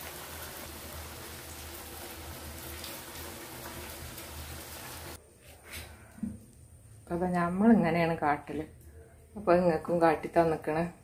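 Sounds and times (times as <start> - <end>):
stove fire hiss and rumble: 0.0 - 7.0.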